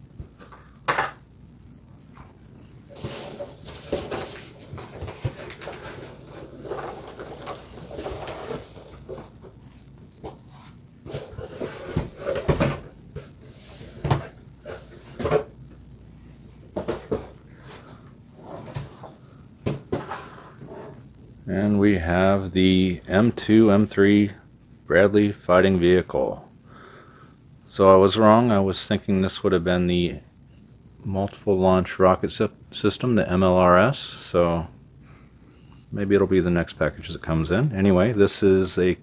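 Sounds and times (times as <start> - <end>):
rustling packing peanuts: 2.8 - 15.3.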